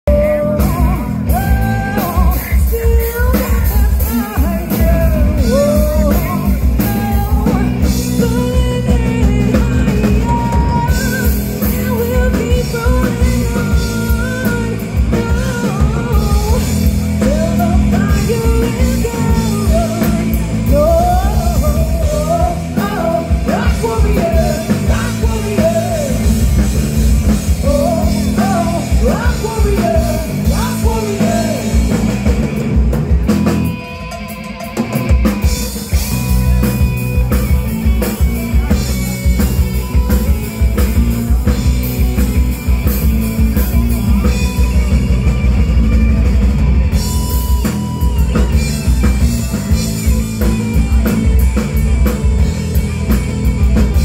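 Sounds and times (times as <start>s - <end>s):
bass guitar: 0.0s - 54.0s
drum kit: 0.0s - 54.0s
electric guitars: 0.0s - 54.0s
woman singing: 0.1s - 26.5s.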